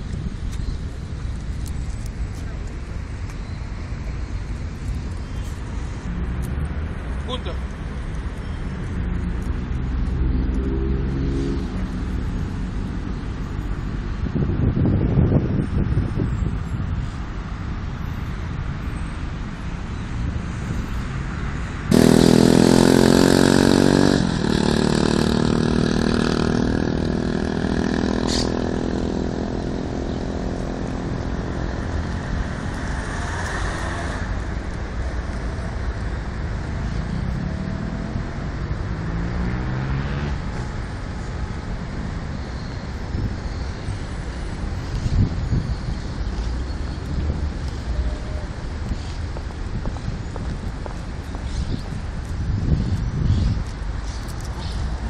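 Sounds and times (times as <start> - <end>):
wind on microphone: 0.0 - 7.0, 8.8 - 39.6, 40.3 - 55.0
road traffic: 0.0 - 55.0
loud vehicle engine: 4.5 - 17.1, 20.6 - 49.8.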